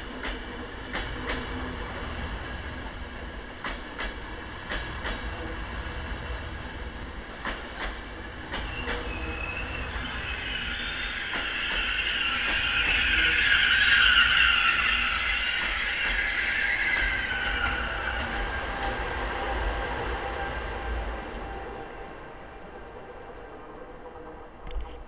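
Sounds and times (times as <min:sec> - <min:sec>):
passenger train rolling past: 0:00.0 - 0:25.0
train wheels clicking over rail joint: 0:03.6 - 0:05.3, 0:07.4 - 0:09.1
high-pitched locomotive noise: 0:04.7 - 0:24.7.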